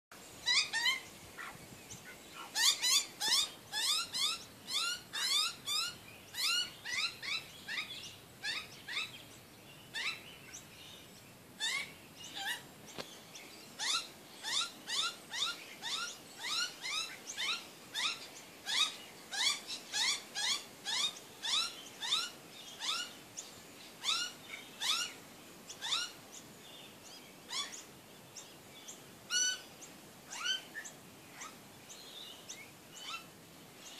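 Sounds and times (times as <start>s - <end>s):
magpies calling: 0.4s - 9.3s, 9.9s - 10.7s, 11.6s - 13.0s, 13.8s - 26.4s, 27.5s - 27.9s, 28.9s - 31.6s.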